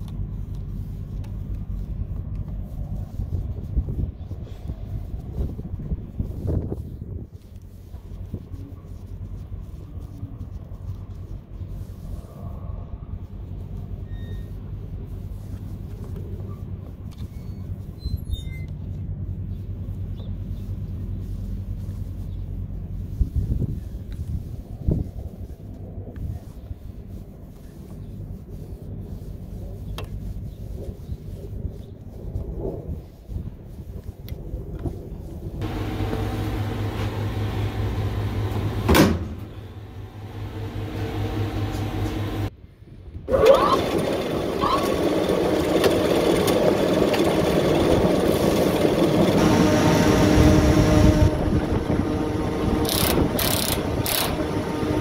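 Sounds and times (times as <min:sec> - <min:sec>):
short high squeaks: 0:14.0 - 0:14.8, 0:16.5 - 0:18.9, 0:43.3 - 0:45.1
heavy machinery rumbling: 0:35.6 - 0:42.5, 0:43.3 - 0:55.0
electrical hum: 0:35.6 - 0:42.6, 0:43.3 - 0:55.0.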